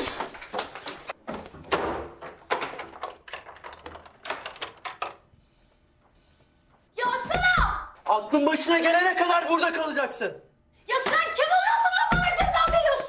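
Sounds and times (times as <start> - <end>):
door shutting and locking: 0.0 - 5.2.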